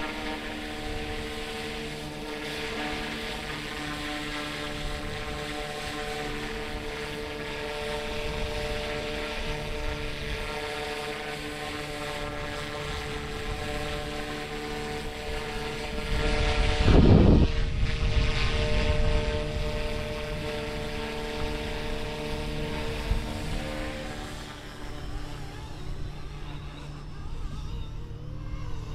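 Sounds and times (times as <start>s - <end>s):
model helicopter rotor whine: 0.0s - 28.9s
wind gust on microphone: 14.8s - 24.2s.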